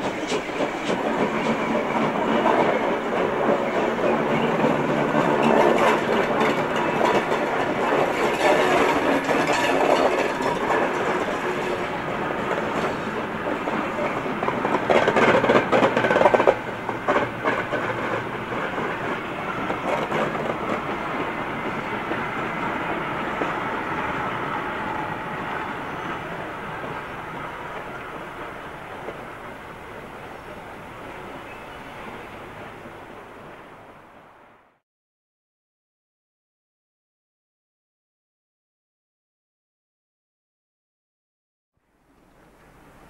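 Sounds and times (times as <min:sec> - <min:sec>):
train wheels clattering on rails: 0:00.0 - 0:33.6.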